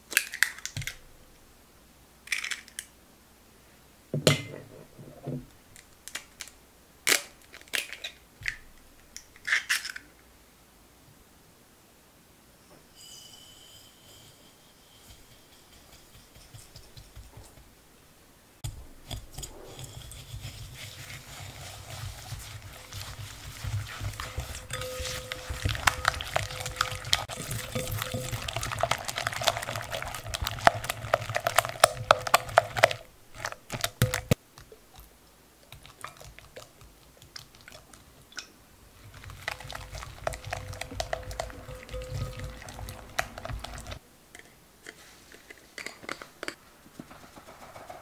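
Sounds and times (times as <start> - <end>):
whisk beating in glass bowl: 13.2 - 17.7, 18.6 - 34.4, 39.0 - 44.0.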